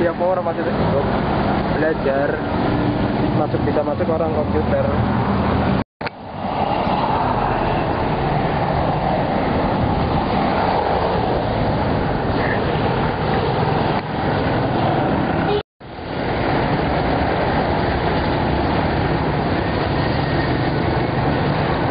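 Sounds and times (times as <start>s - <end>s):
street traffic rumble: 0.0s - 21.9s.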